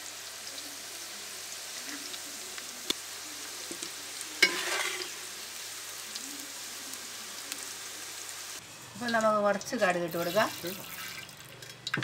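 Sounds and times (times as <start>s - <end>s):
oil sizzling in a pan: 0.0s - 12.0s
metal cookware clanking: 4.4s - 5.2s.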